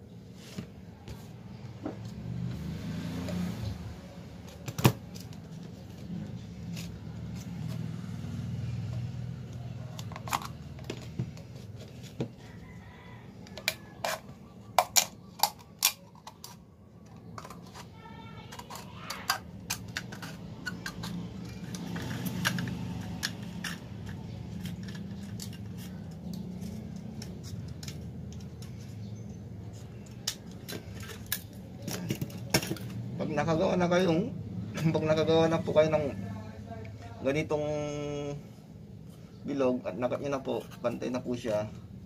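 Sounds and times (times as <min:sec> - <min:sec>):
scissors cutting plastic bottle: 0:13.6 - 0:28.7.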